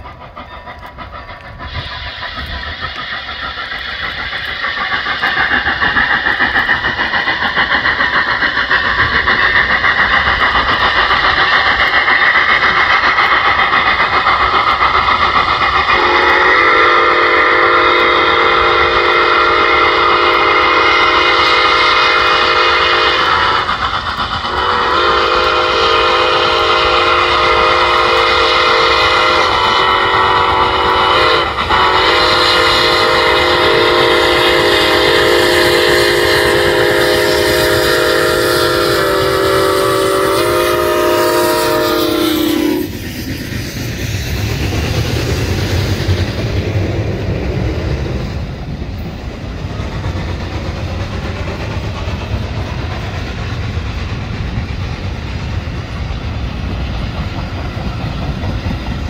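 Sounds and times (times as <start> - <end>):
train cars rumbling on rails: 0.0 - 59.0
steam whistle chord: 16.0 - 23.7, 24.5 - 43.0.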